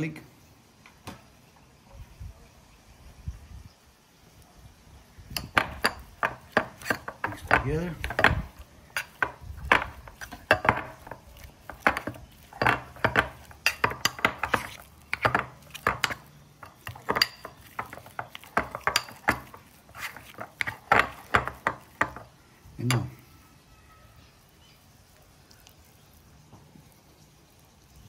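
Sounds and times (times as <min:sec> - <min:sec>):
metal spoon scraping ceramic bowl: 0:05.4 - 0:22.3.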